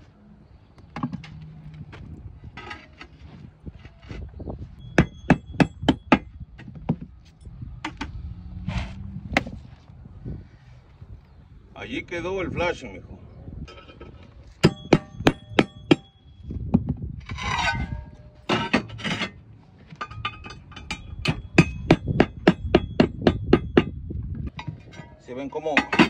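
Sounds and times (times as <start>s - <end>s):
hammer tapping on roof tiles: 5.0s - 7.1s
short scrape: 8.6s - 9.1s.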